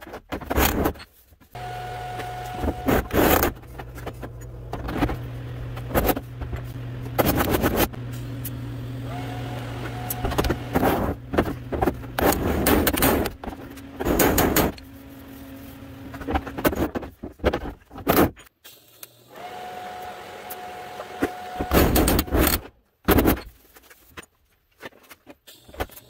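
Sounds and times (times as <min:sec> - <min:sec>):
welding arc humming: 0:01.6 - 0:11.3.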